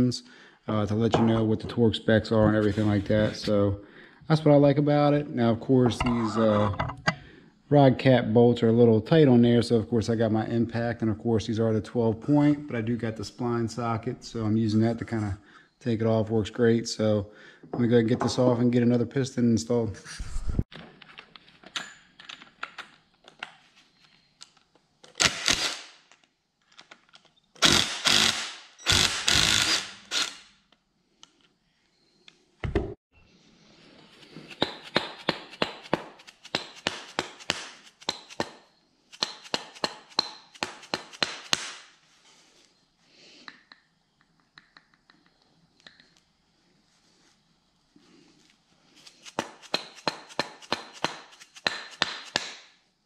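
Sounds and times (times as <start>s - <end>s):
impact wrench hammering: 39.2s - 41.7s.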